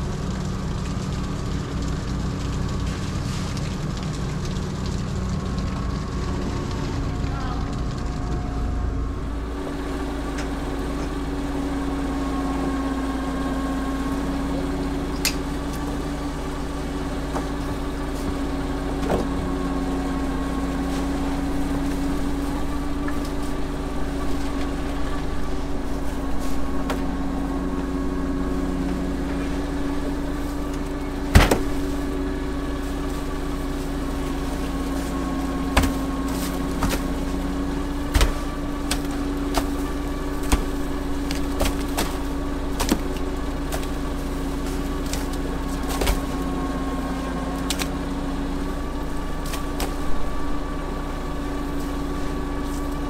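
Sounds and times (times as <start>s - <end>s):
engine humming: 0.0s - 53.0s.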